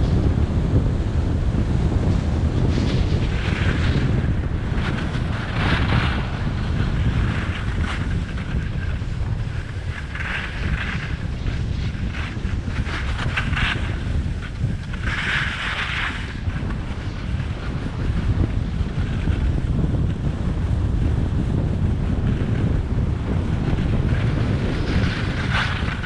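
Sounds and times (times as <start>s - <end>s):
wind rumbling on microphone: 0.0s - 26.0s
ski edges scraping snow: 2.6s - 19.6s, 23.6s - 26.0s.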